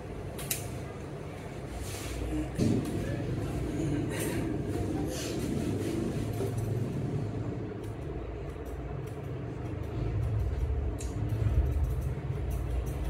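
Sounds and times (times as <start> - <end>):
low steady rumble: 0.0 - 13.0.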